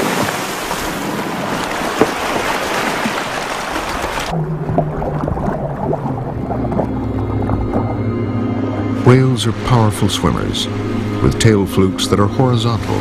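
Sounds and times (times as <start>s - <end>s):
choppy sea water: 0.0s - 13.0s
low sustained music tones: 4.3s - 13.0s.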